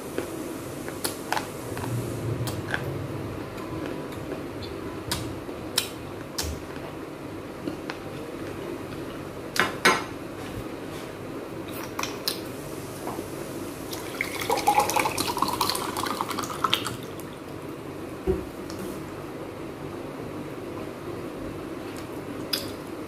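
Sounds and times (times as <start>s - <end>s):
water pouring into a glass: 13.9s - 17.1s.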